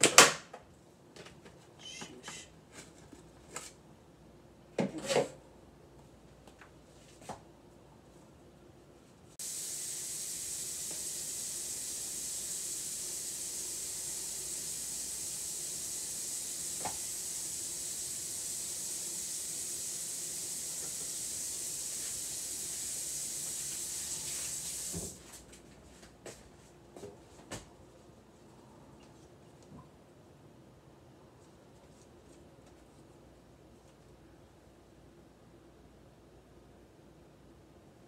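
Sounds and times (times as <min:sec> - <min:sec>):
steady hiss: 0:09.3 - 0:25.2.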